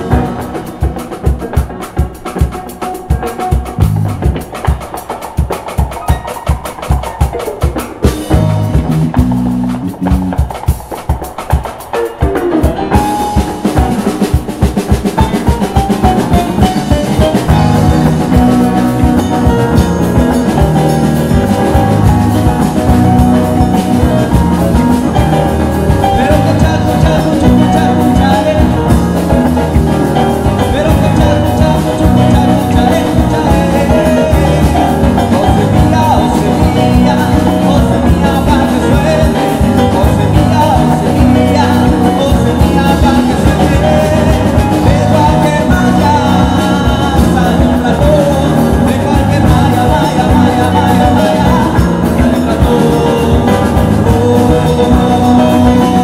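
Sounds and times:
drum and cymbal struck: 0:00.0 - 0:56.0
live salsa band playing: 0:00.0 - 0:56.0.

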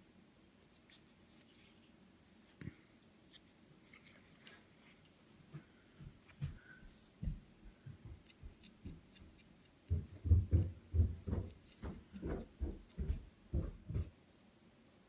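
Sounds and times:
knife scraping seeds: 0:08.2 - 0:13.1.

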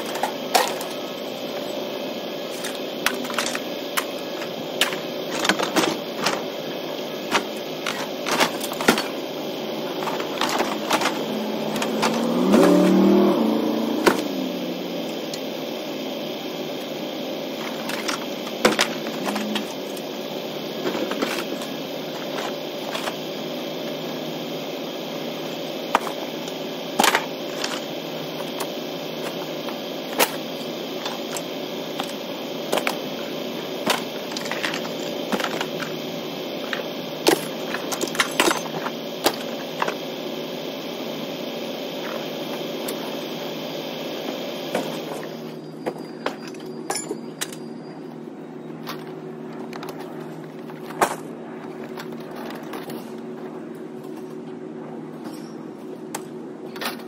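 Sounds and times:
vehicle engine hum: 0:00.0 - 0:45.7
sound rising and falling in pitch: 0:10.6 - 0:16.6.

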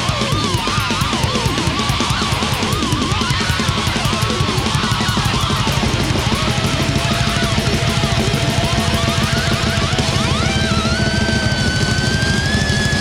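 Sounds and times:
lead guitar line: 0:00.0 - 0:13.0
metal band playing live: 0:00.0 - 0:13.0.

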